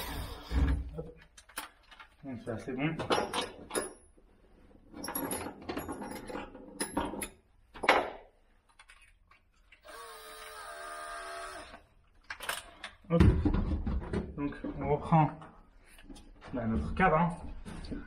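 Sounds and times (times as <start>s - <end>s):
electric drill running: 0.0s - 0.5s, 9.8s - 11.8s.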